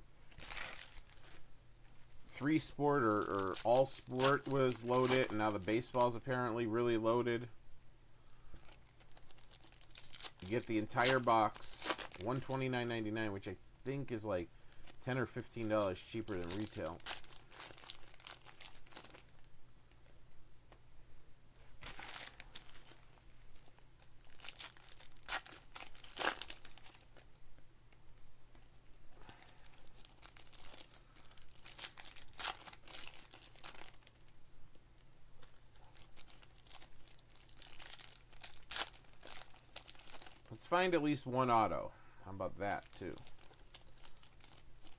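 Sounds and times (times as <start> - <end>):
foil wrappers tearing and crinkling: 0.3 - 1.4, 2.4 - 6.2, 8.6 - 12.6, 15.5 - 19.4, 21.8 - 23.0, 23.6 - 27.2, 29.3 - 34.3, 35.8 - 40.6, 42.7 - 44.9.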